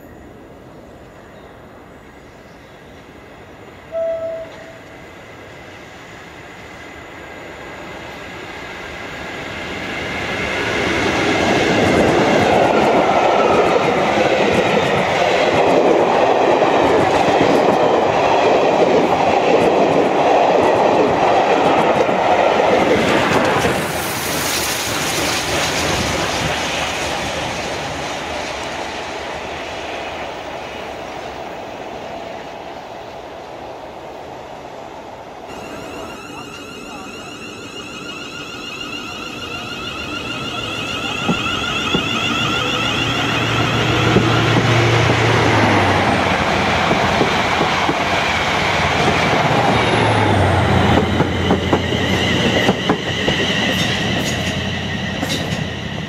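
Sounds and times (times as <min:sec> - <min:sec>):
distant train running: 0:00.0 - 0:56.0
passenger train passing: 0:00.0 - 0:56.0
train horn toot: 0:03.9 - 0:04.9.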